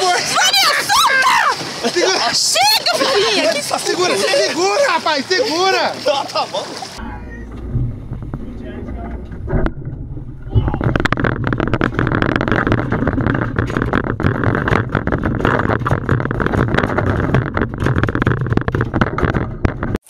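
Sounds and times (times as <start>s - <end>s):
fish thrashing on boat deck: 6.4s - 20.0s
low rumble: 7.0s - 19.9s.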